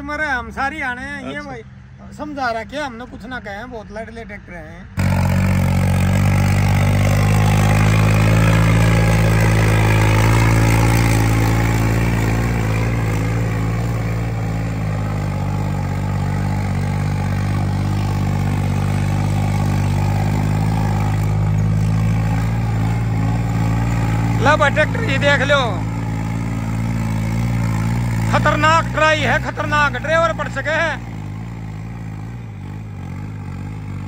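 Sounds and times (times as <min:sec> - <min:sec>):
tractor diesel engine running: 0:05.0 - 0:34.0.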